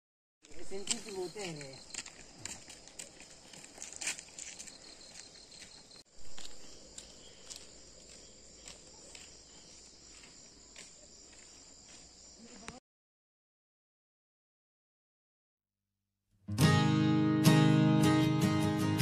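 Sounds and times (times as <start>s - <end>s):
crickets and insects chirping: 0.4s - 12.8s.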